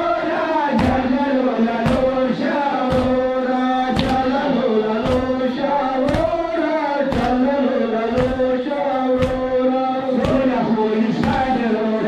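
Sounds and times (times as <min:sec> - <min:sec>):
group chanting a lament: 0:00.0 - 0:12.0
chest-beating slaps: 0:00.8 - 0:01.1, 0:01.8 - 0:02.2, 0:02.9 - 0:03.3, 0:03.9 - 0:04.4, 0:05.0 - 0:06.4, 0:07.1 - 0:07.5, 0:09.1 - 0:09.6, 0:10.2 - 0:10.6.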